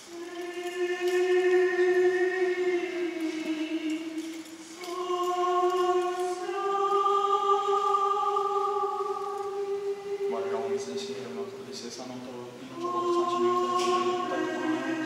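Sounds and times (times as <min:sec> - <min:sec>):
choir chanting long notes: 0:00.0 - 0:11.6, 0:12.6 - 0:15.0.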